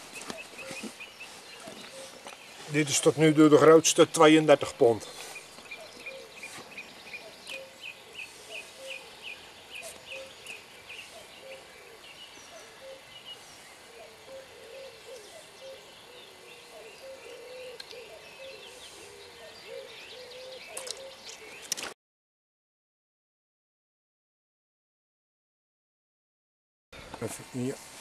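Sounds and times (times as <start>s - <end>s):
lower repeated bird calls: 0.0s - 21.9s.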